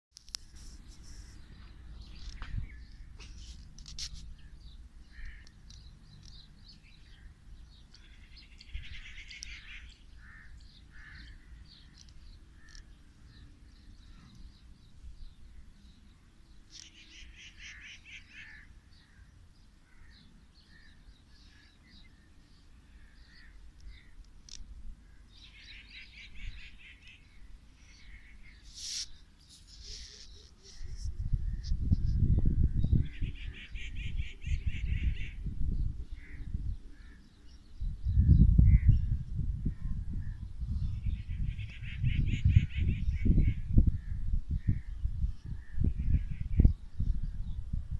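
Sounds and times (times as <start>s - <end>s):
birds chirping: 0.2s - 47.7s
rapid chattering bird calls: 0.5s - 14.9s, 16.6s - 19.3s, 23.0s - 32.3s.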